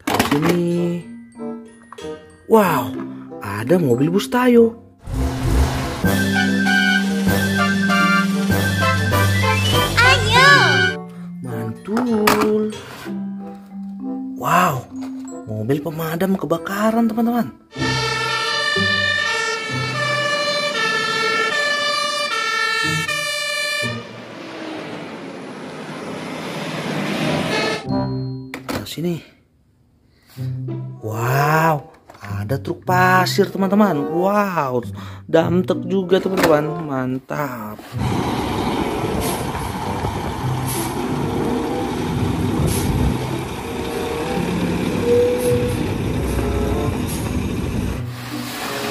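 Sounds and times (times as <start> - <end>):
truck engines and tyres rushing: 5.0 - 11.0, 17.8 - 27.9, 37.9 - 48.9
two-tone fire engine sirens: 6.0 - 11.0, 17.7 - 26.2, 38.8 - 48.0
diesel truck engine running: 38.0 - 48.2
gravel spreading: 38.0 - 48.9.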